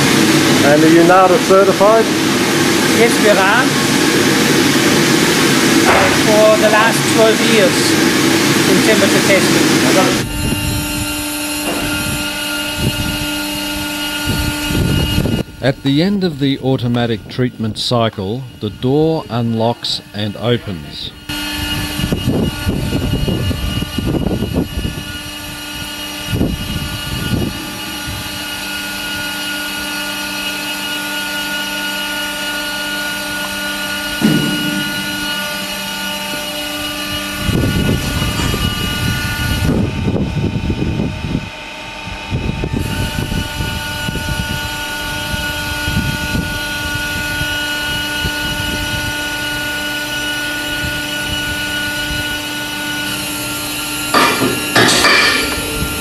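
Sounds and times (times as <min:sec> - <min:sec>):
machinery whining: 0:00.0 - 0:56.0.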